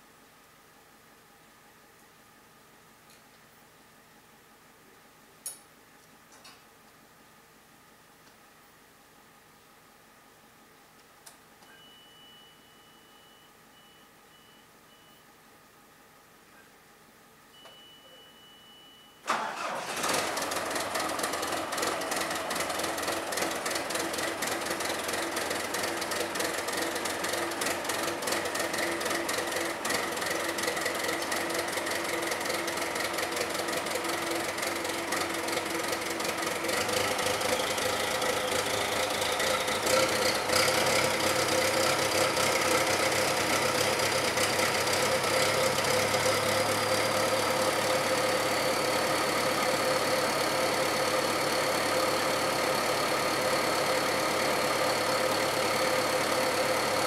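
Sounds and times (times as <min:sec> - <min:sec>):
high beep: 0:11.6 - 0:15.3, 0:17.5 - 0:19.2
diesel engine starting and idling: 0:19.2 - 0:57.0.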